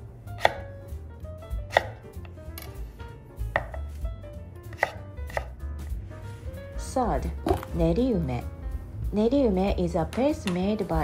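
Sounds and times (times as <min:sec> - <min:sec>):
knife chopping on wooden board: 0:00.4 - 0:00.7, 0:01.5 - 0:02.3, 0:03.5 - 0:04.0, 0:04.6 - 0:05.6.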